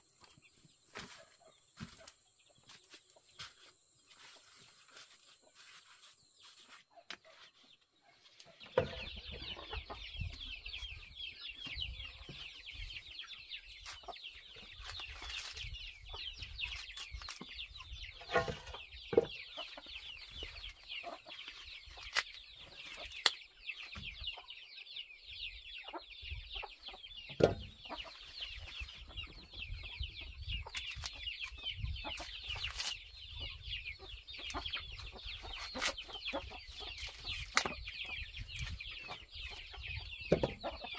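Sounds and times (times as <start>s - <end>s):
corn husks tearing and rustling: 14.8s - 15.6s, 16.6s - 17.5s, 21.4s - 23.4s, 30.7s - 31.6s, 32.2s - 33.1s, 35.6s - 36.1s, 36.9s - 37.8s.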